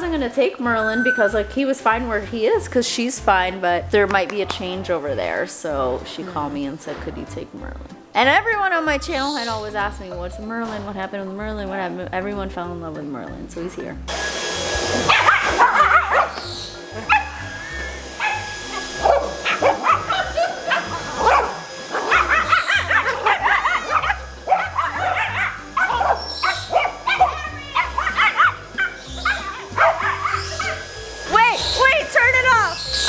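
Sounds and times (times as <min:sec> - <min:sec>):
dog barking and yipping: 0:15.0 - 0:32.0.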